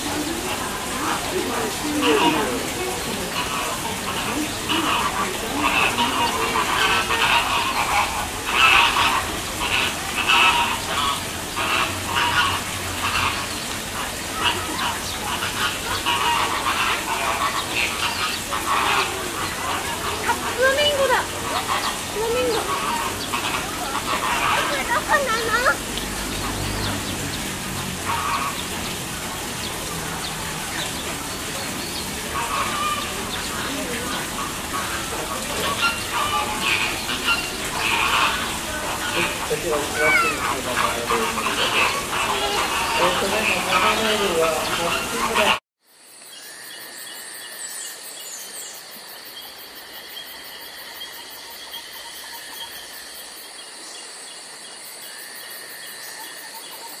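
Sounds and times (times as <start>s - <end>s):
running water hissing: 0.0s - 45.6s
insects chirping: 45.8s - 57.0s.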